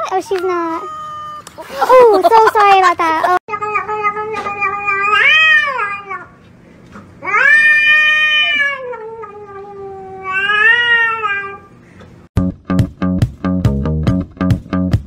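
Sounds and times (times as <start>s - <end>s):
cat yowling: 0.7s - 1.5s, 4.0s - 6.3s, 7.2s - 11.6s.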